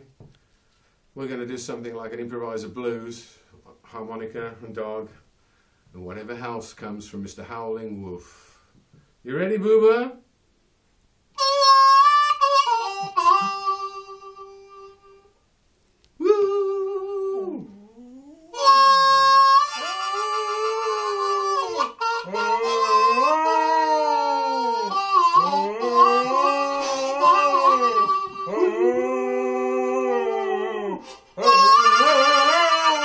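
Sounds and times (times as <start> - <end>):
harmonica playing blues: 11.4 - 15.3, 18.2 - 29.0, 31.0 - 33.0
dog howling: 16.2 - 33.0.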